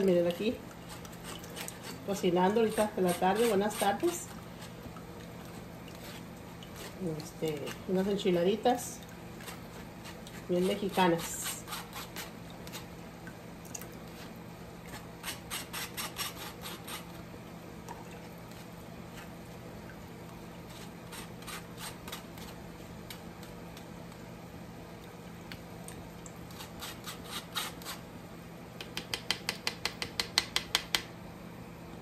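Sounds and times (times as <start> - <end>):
spoon scraping wire-mesh strainer: 0.9 - 4.7, 9.4 - 12.9.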